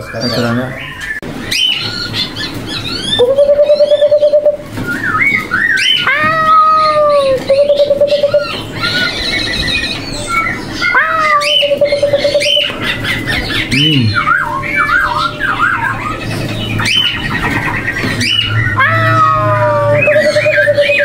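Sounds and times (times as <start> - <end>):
songbirds whistling: 0.0 - 21.0.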